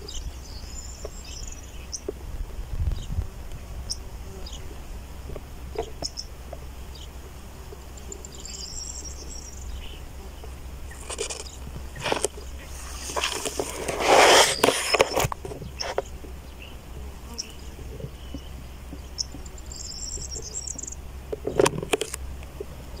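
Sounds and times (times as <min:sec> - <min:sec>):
steady low rumble: 0:00.0 - 0:13.9.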